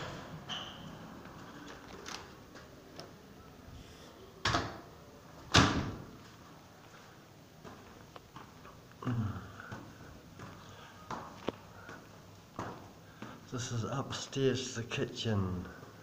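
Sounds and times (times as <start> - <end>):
door banging shut: 5.5 - 6.1
footsteps on stairs: 7.6 - 8.9, 9.6 - 13.5.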